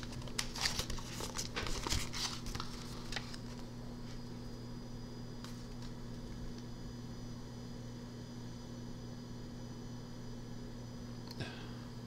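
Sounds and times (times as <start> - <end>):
paper rustling and crinkling: 0.0 - 3.6
faint electrical hum: 0.0 - 12.0.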